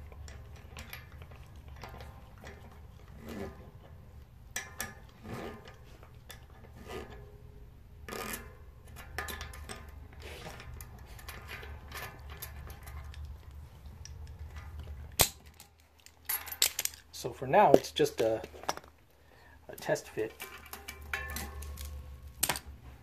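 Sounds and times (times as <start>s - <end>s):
low steady hum: 0.0s - 23.0s
metal tools clinking and rattling: 8.1s - 19.0s, 19.7s - 22.9s.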